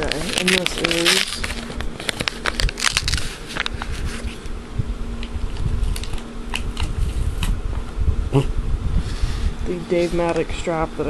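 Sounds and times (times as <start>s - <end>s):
packaging clicks and crackles: 0.0s - 4.5s, 5.2s - 7.0s
thin low hum: 0.0s - 11.0s.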